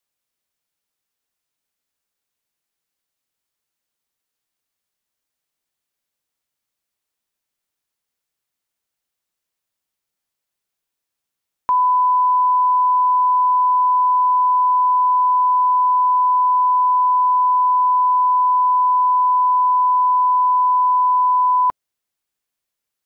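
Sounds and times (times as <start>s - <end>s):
steady test tone beep: 11.7s - 21.8s.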